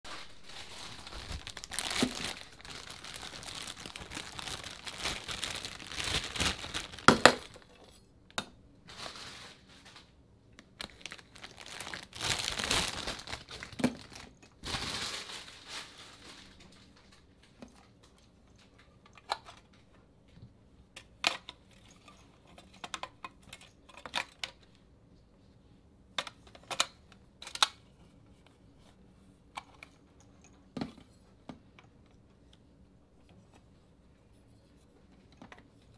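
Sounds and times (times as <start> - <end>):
dense rustling: 0.1 - 7.5.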